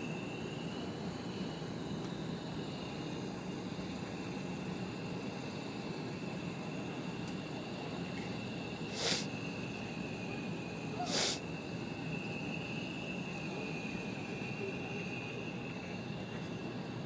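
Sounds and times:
faint high whine: 0:00.0 - 0:17.0
propane flame rushing: 0:00.1 - 0:14.5
sharp hissing bursts: 0:08.6 - 0:10.1, 0:10.9 - 0:13.2.

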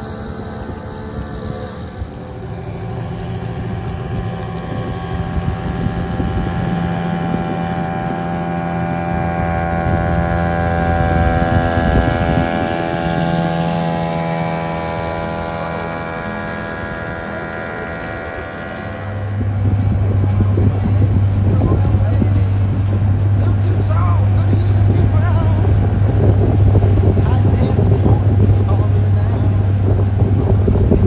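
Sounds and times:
outboard motor running: 0:00.0 - 0:31.0.

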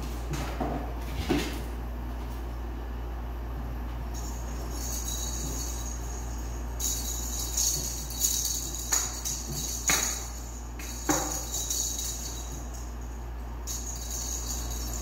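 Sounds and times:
steady low hum: 0:00.0 - 0:15.0
high jingling: 0:04.1 - 0:15.0.

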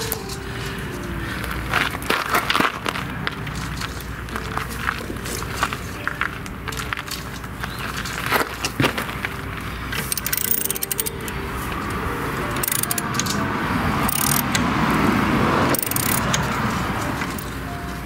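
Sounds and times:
socket ratchet clicking: 0:10.0 - 0:11.4, 0:12.5 - 0:14.7, 0:15.7 - 0:17.5.

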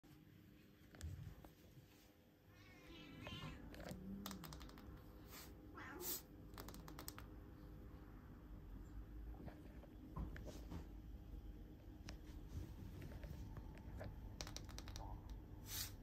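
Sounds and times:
cat meowing faintly: 0:02.5 - 0:04.1, 0:05.7 - 0:06.3.

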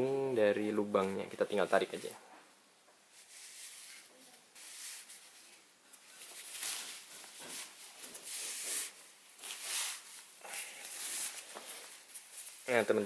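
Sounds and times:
cloth rustling: 0:03.0 - 0:13.0.

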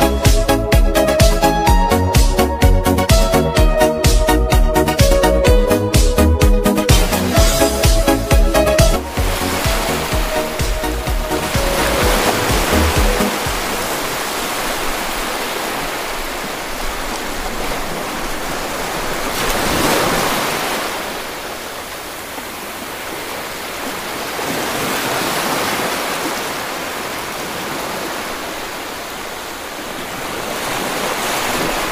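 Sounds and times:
rushing water hiss: 0:06.9 - 0:31.9.

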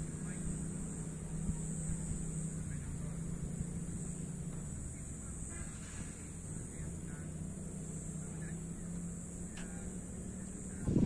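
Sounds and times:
high-pitched hiss: 0:00.0 - 0:11.0
low engine-like hum: 0:00.0 - 0:11.0.

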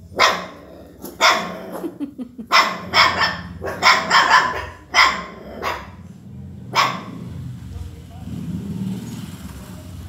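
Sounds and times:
dog barking: 0:00.0 - 0:01.9, 0:02.5 - 0:06.0, 0:06.7 - 0:07.3.

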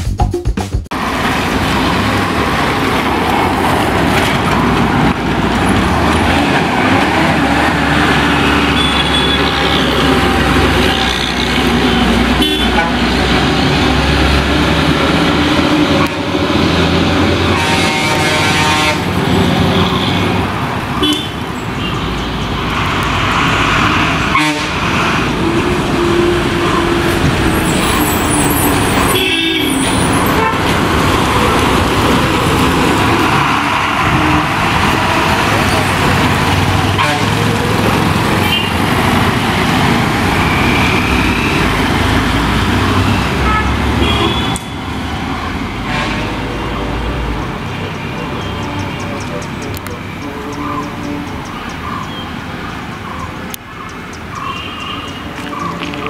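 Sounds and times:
diesel engines running: 0:00.9 - 0:56.0
vehicle horn: 0:08.3 - 0:13.2, 0:17.4 - 0:20.4, 0:21.0 - 0:22.5, 0:24.3 - 0:24.9, 0:28.9 - 0:30.8, 0:36.9 - 0:37.6, 0:38.4 - 0:38.8, 0:43.1 - 0:44.9, 0:45.8 - 0:46.7.

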